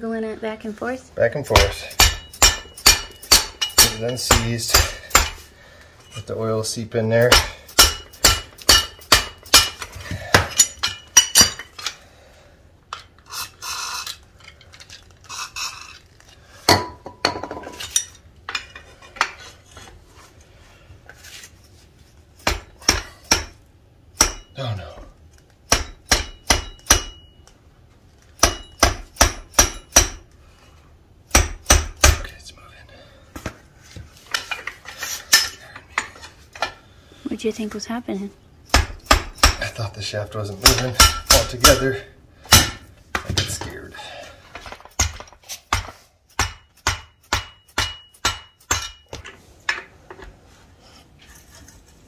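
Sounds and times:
mallet striking metal: 1.6s - 5.4s, 7.3s - 9.8s, 24.2s - 24.6s, 25.7s - 27.3s, 28.4s - 30.2s, 45.0s - 49.1s.

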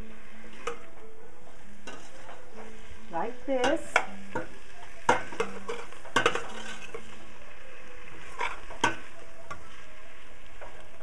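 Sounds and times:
vegetables sizzling in oil: 0.0s - 11.0s
metal spoon scraping a pot: 1.8s - 2.5s, 5.1s - 7.2s, 8.2s - 9.7s.

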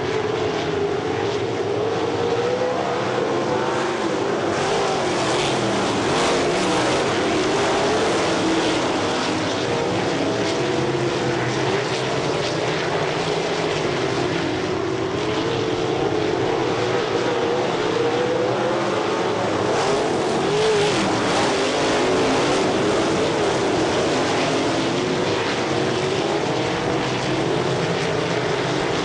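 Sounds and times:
race car engines: 0.0s - 29.0s.

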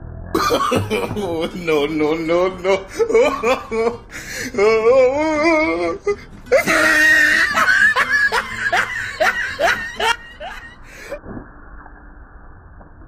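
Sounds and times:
child laughing: 0.4s - 4.0s, 5.4s - 10.8s.

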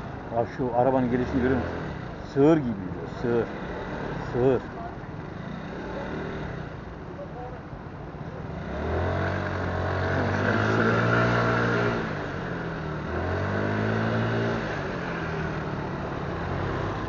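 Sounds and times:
motorcycle engine accelerating: 5.2s - 6.8s, 8.3s - 17.0s.

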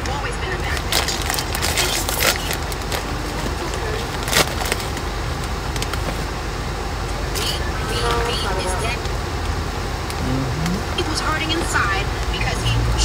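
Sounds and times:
car road rumble: 0.0s - 13.0s
foil chip bag crinkling: 0.7s - 5.1s.

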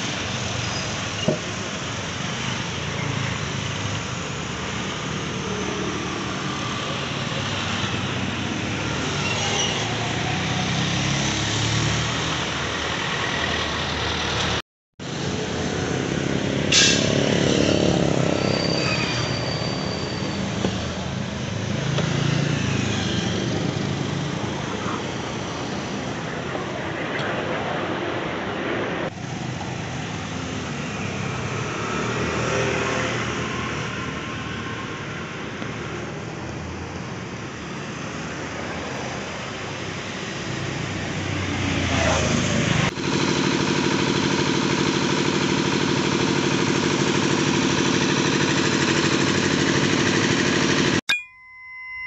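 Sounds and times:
street traffic: 0.0s - 52.0s.

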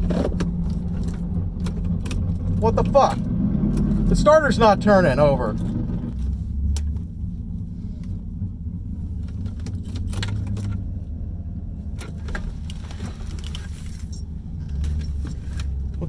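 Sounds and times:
clicks and rattles in car: 0.0s - 3.1s, 9.1s - 10.9s, 11.9s - 16.0s
low engine rumble: 0.0s - 16.0s.

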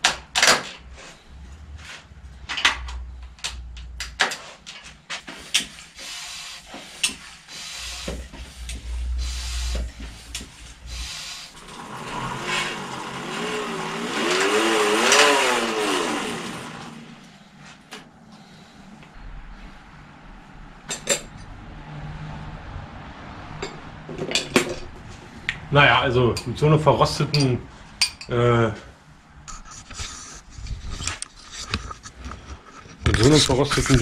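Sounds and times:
clicks and knocks of hand work: 2.4s - 5.9s
bicycle dynamo whirring: 5.3s - 17.8s.

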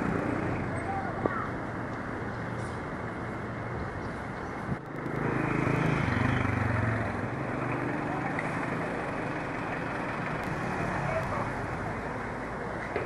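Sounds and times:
traffic hum: 0.0s - 13.0s
vehicle engine passing by: 4.9s - 12.4s.

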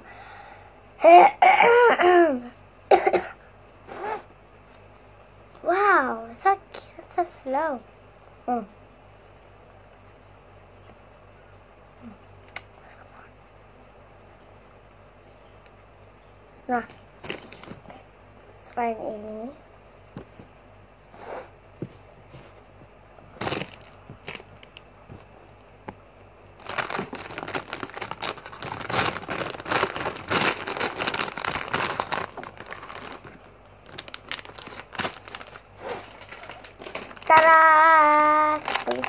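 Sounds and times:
plastic packaging crinkling: 17.2s - 18.0s, 23.4s - 25.3s, 26.6s - 39.0s.

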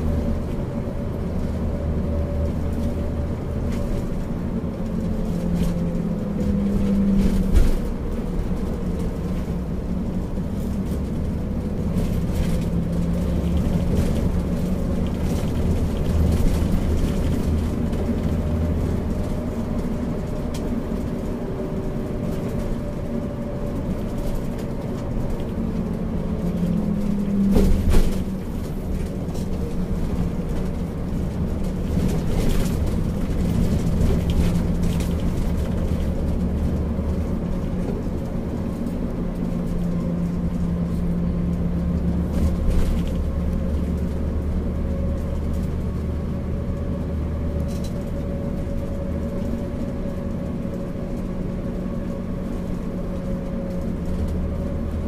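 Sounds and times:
bus engine running: 0.0s - 55.0s
road noise: 0.0s - 55.0s.

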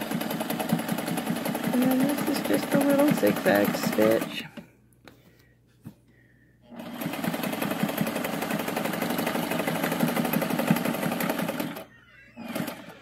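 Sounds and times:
sewing machine motor hum: 0.0s - 4.6s, 6.6s - 13.0s
sewing machine stitching: 0.0s - 4.6s, 6.7s - 13.0s.

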